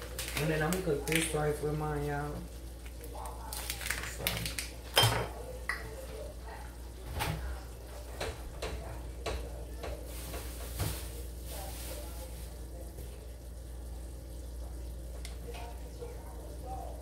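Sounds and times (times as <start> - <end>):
meat sizzling on stove: 0.0 - 8.1, 8.8 - 17.0
kitchen knocks and clatter: 3.8 - 6.2, 7.0 - 11.1.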